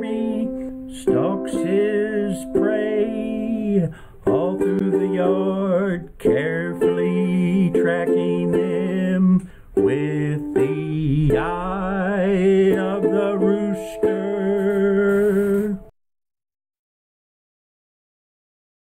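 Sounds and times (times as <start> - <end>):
person singing: 0.0 - 15.9
ukulele playing: 0.0 - 15.9.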